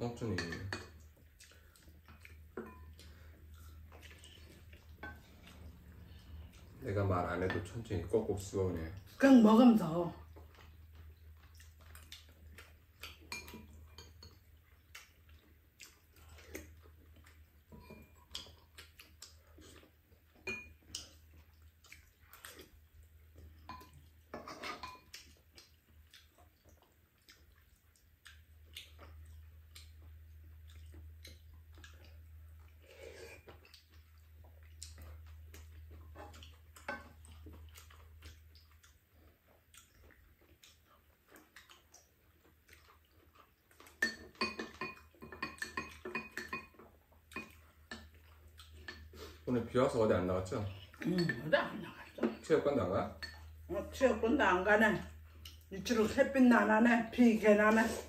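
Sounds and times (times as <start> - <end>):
spoons clinking against bowls: 0.2 - 1.0, 13.3 - 14.4, 20.4 - 20.8, 23.7 - 25.1, 44.0 - 46.8, 51.0 - 51.5, 53.2 - 53.5
quiet chewing: 0.8 - 9.2, 10.1 - 54.2, 55.0 - 56.3.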